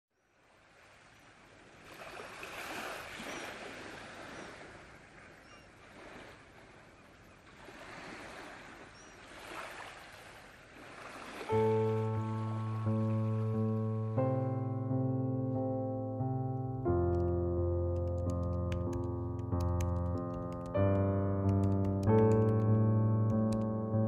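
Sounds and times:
waves lapping on sandy shore: 0:00.4 - 0:13.4.

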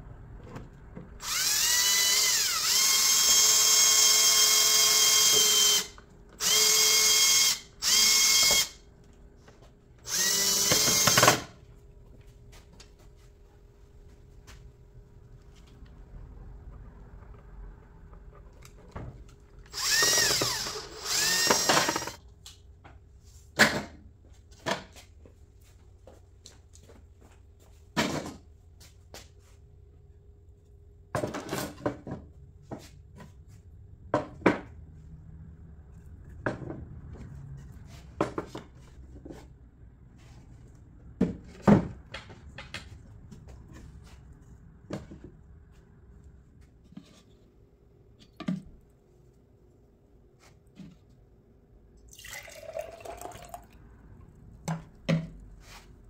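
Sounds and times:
cordless drill whining: 0:01.2 - 0:08.8, 0:10.1 - 0:11.5, 0:19.7 - 0:22.2.

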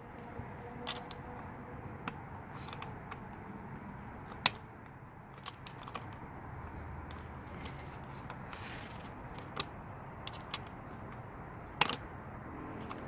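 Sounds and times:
allen wrench clicking in bolt hole: 0:00.6 - 0:01.2, 0:02.0 - 0:03.2, 0:05.4 - 0:06.2, 0:07.1 - 0:10.8, 0:11.8 - 0:12.0.

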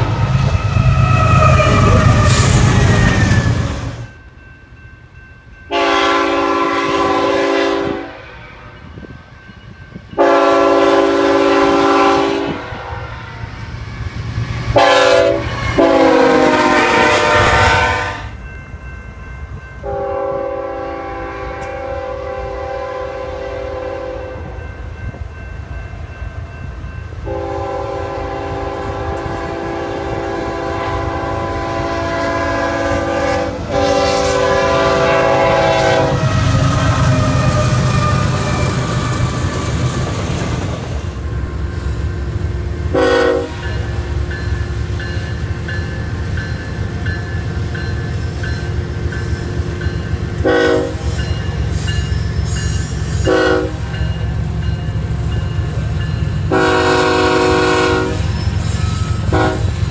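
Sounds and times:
passing train rumble: 0:00.0 - 0:59.9
locomotive horn blasts: 0:05.7 - 0:08.8, 0:10.2 - 0:13.2, 0:14.8 - 0:18.4, 0:19.8 - 0:24.5, 0:27.3 - 0:39.1, 0:42.9 - 0:43.9, 0:50.4 - 0:51.2, 0:53.2 - 0:54.0, 0:56.5 - 0:58.4, 0:59.2 - 0:59.8.

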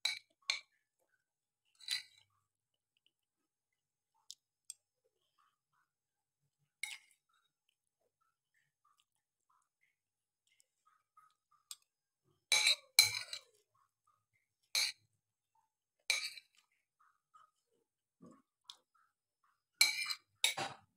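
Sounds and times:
metal spoon clinking on plate: 0:19.8 - 0:20.8.

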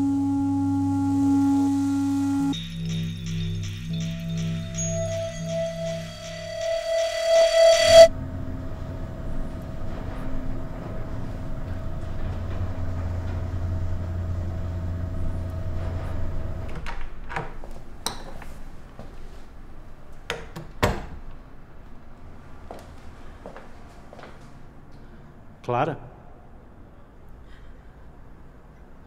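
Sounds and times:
sustained musical tone: 0:00.0 - 0:09.4
elevator cab rumbling: 0:00.0 - 0:17.3.

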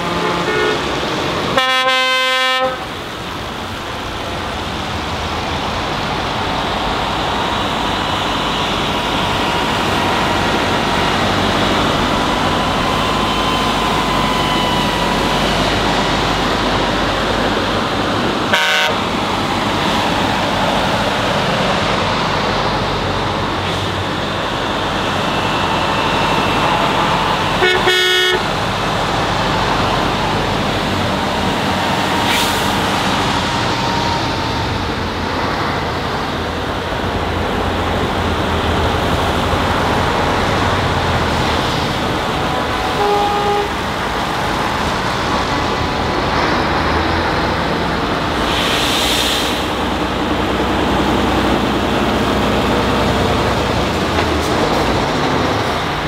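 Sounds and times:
truck horns: 0:00.0 - 0:03.1, 0:18.4 - 0:19.5, 0:24.8 - 0:30.5, 0:42.6 - 0:44.1
truck engines running: 0:00.0 - 0:56.0.

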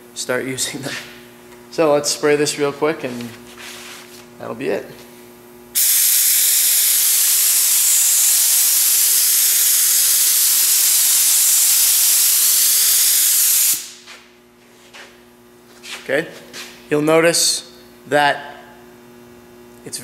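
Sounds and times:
spray gun hissing: 0:05.8 - 0:14.0.

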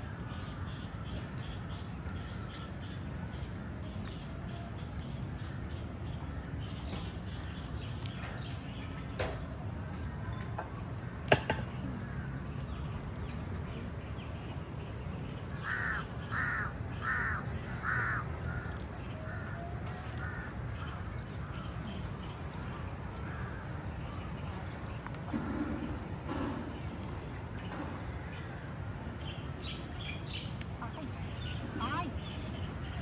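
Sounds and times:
crow cawing: 0:15.6 - 0:18.7.

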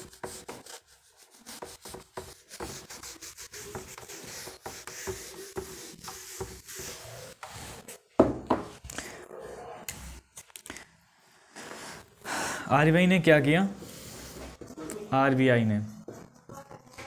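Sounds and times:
duster rubbing on whiteboard: 0:00.0 - 0:08.7.

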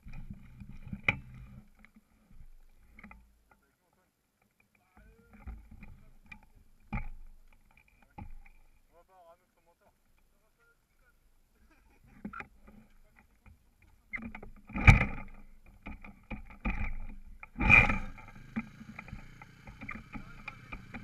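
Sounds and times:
motorbike engine starting and idling: 0:17.5 - 0:21.0.

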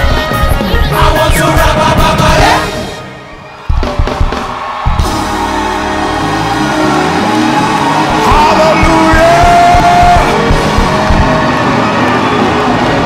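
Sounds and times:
person singing: 0:00.0 - 0:02.9
gospel band playing: 0:00.0 - 0:13.0
worshippers shouting: 0:05.4 - 0:12.9.

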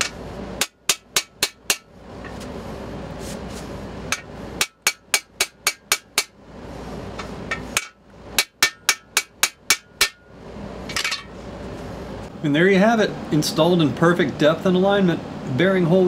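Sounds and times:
hammer striking metal driver: 0:00.0 - 0:01.9, 0:04.1 - 0:06.4, 0:07.5 - 0:10.3.

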